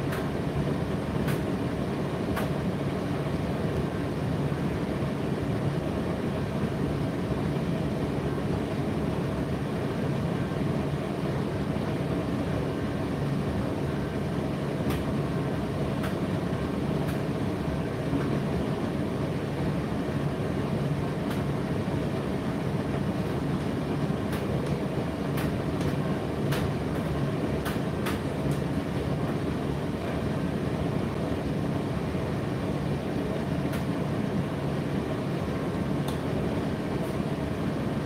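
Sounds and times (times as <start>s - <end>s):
tumble dryer rumbling and humming: 0.0s - 38.0s.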